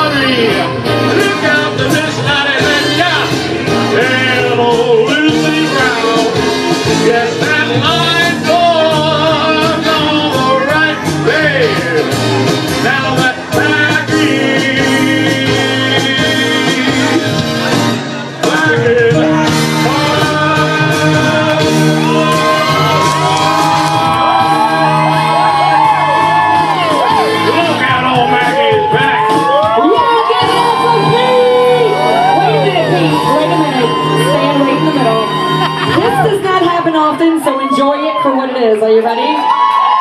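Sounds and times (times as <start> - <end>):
man singing into a microphone: 0.0 - 23.3, 27.2 - 35.4
karaoke backing music: 0.0 - 40.0.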